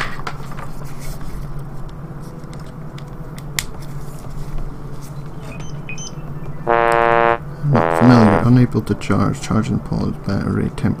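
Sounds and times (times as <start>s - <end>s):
loud buzzing tone: 6.7s - 8.5s.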